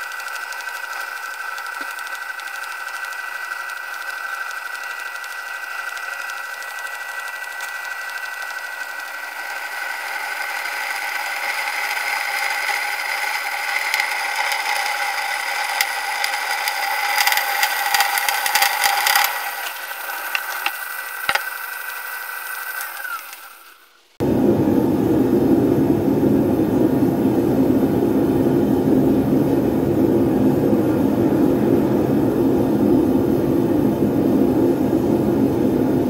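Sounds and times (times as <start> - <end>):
drill bit scraping metal: 0.0 - 23.8
electric drill motor whine: 0.0 - 24.0
rapid crackling of bit: 0.0 - 24.2.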